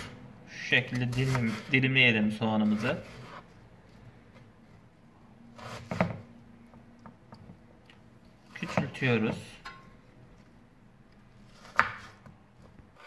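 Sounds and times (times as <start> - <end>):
knife cutting on wooden board: 1.0 - 1.7, 5.6 - 6.2, 8.4 - 9.0, 11.4 - 12.3.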